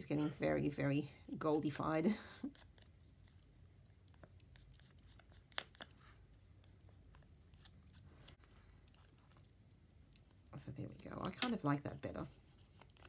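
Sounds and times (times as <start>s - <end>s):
marker scratching on cardstock: 11.7s - 13.0s.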